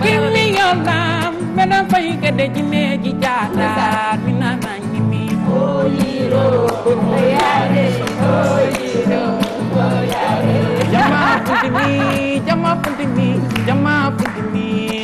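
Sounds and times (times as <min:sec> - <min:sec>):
acoustic guitar strumming: 0:00.0 - 0:15.0
group singing: 0:05.2 - 0:13.4.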